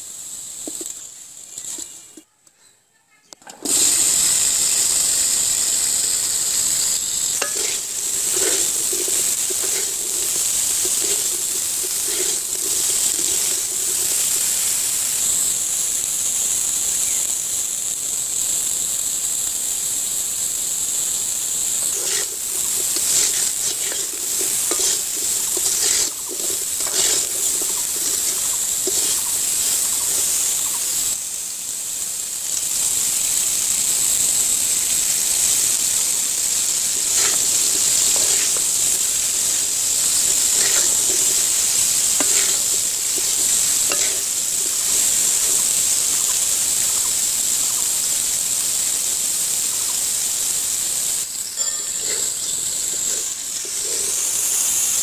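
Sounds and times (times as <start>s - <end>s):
wet vegetables sizzling in a wok: 0.0s - 55.0s
pieces knocking against pan: 7.4s - 14.7s, 21.8s - 30.4s, 36.9s - 45.7s.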